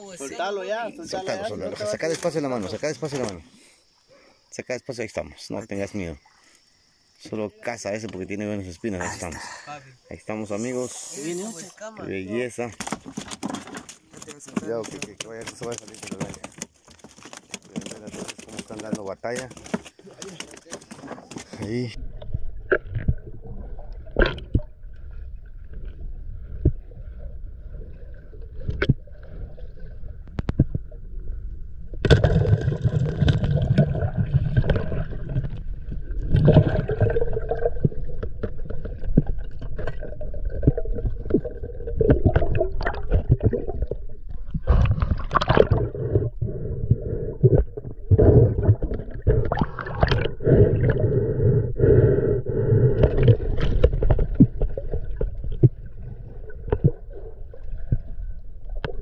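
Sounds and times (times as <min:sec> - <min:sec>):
water splashing and sloshing: 0:10.6 - 0:51.0, 0:52.9 - 0:59.0
knocks and scrapes on boat: 0:12.7 - 0:21.9.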